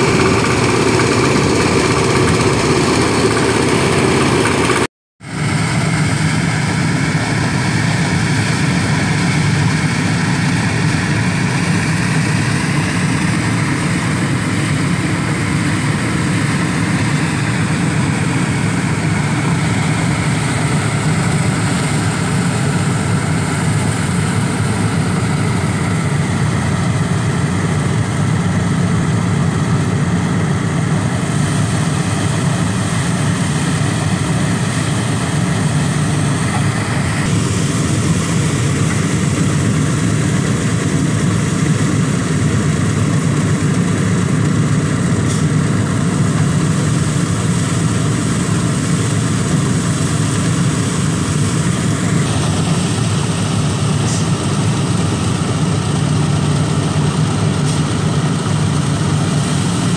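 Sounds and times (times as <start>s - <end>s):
threshing machine running: 0.0s - 59.9s.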